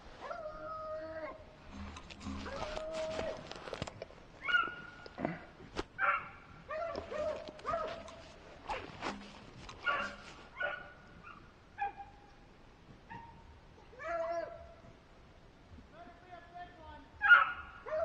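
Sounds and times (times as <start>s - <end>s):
dogs barking and yipping: 4.4s - 5.2s, 6.0s - 12.2s, 17.2s - 18.0s.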